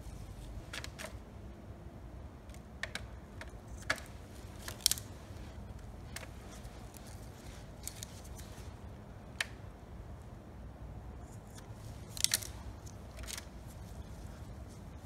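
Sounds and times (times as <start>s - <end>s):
steady low hum: 0.0s - 15.0s
gloved hands clicking and rustling: 0.4s - 1.3s, 2.4s - 8.7s, 11.4s - 15.0s.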